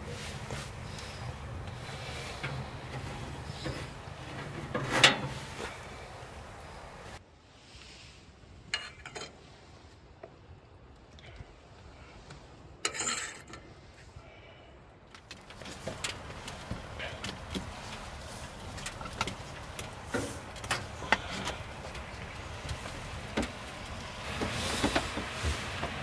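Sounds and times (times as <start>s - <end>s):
wood fire crackling: 0.0s - 7.2s, 14.8s - 26.0s.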